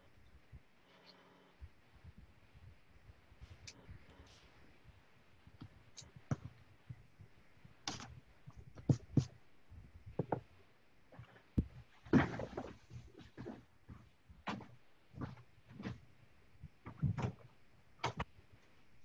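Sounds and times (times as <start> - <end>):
paper tapping and clicking: 7.9 - 8.1.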